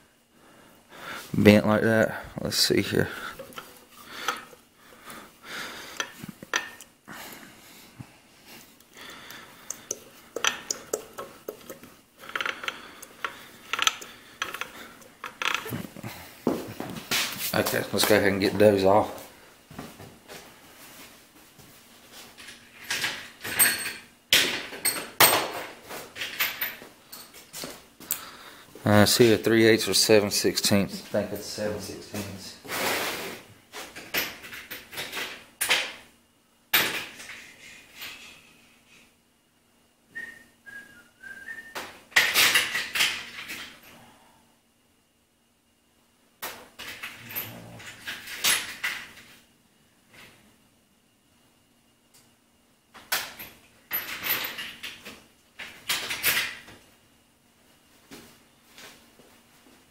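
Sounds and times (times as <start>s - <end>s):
metal tools clinking and clattering: 3.1s - 4.6s, 9.7s - 15.8s
person whistling: 40.1s - 41.8s.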